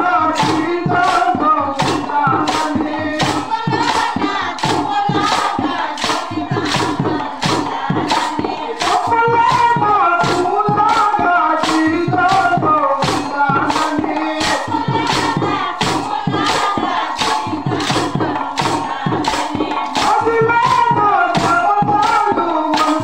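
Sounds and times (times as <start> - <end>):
group singing devotional song: 0.0 - 23.0
wooden hand clappers: 0.2 - 23.0.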